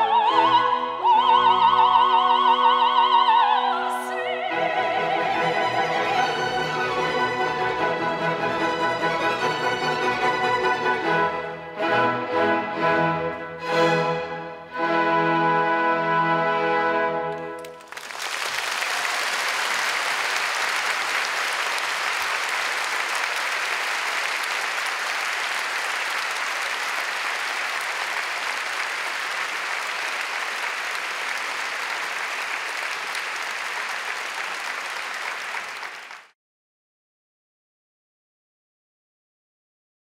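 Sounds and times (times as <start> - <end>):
audience applauding: 17.3 - 36.4.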